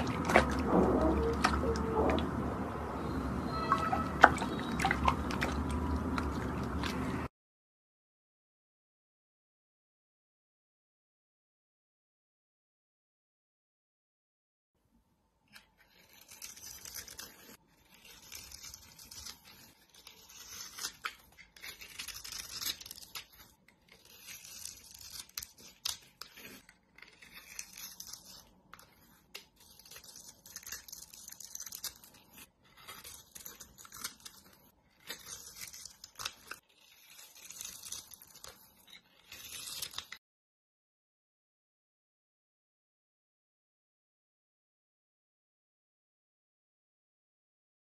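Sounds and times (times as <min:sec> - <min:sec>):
knife scraping soap: 0:15.5 - 0:40.2.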